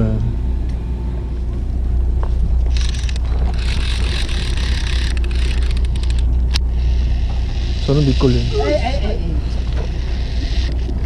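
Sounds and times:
boat engine low hum: 0.0 - 11.0
hissing rush: 2.8 - 11.0.

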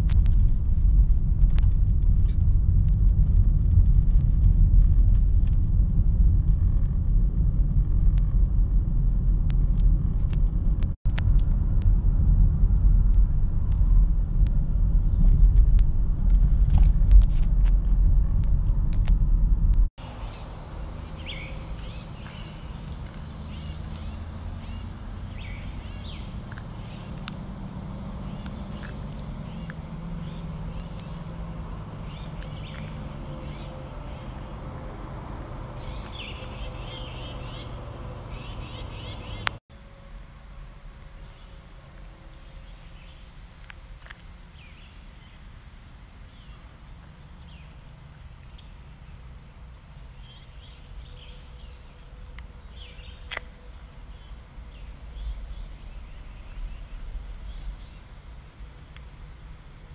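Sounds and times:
loud low rumble: 0.0 - 39.6
small birds chirping: 20.0 - 39.6, 41.2 - 59.9.

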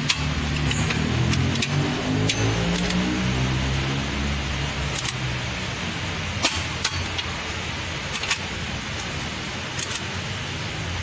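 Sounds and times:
metal tools clicking and clinking: 0.0 - 3.0, 4.9 - 5.3, 6.4 - 7.3, 8.1 - 10.1
steady hiss: 3.2 - 11.0.

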